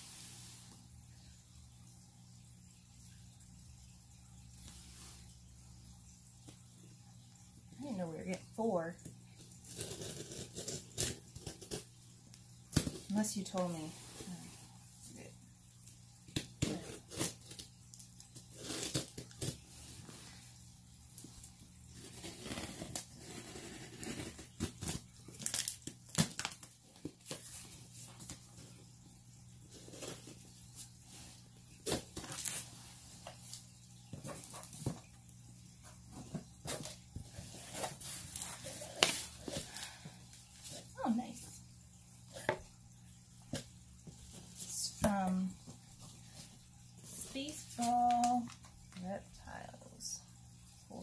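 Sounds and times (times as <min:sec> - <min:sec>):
packaging tearing and crinkling: 0:16.7 - 0:19.6, 0:22.0 - 0:26.8.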